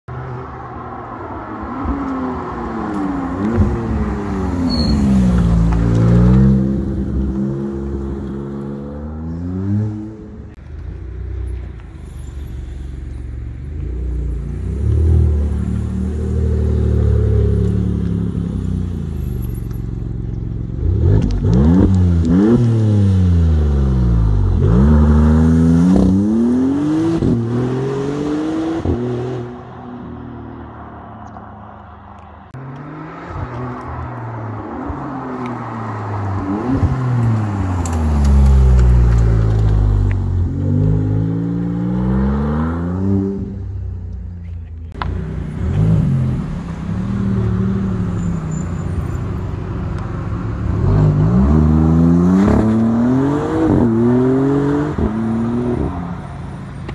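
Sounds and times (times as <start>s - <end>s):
car engine revving: 20.3s - 30.1s.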